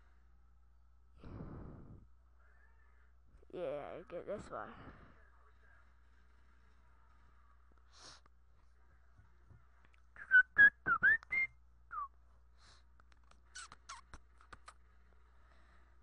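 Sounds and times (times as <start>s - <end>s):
person whistling: 10.2s - 12.1s.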